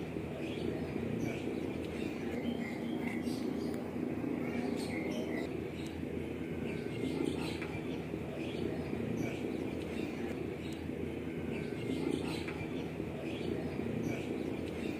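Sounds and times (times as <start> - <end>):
steady low hum: 0.0 - 14.9
bird chirps: 0.3 - 3.8, 4.4 - 6.0.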